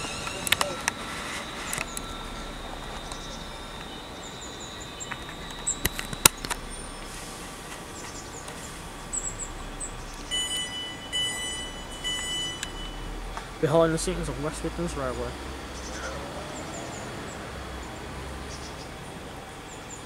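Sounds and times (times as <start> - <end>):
sharp clicks: 0.0 - 2.2, 5.0 - 7.1
train door alert beeping: 0.0 - 7.8, 8.5 - 13.4
birds chirping: 0.0 - 20.0
train high whine: 0.0 - 20.0.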